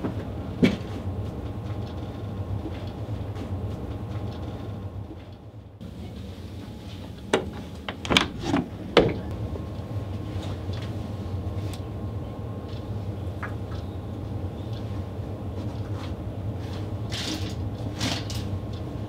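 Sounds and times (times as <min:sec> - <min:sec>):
steady low hum: 0:00.0 - 0:19.0
door knocks and clatters: 0:07.4 - 0:09.3.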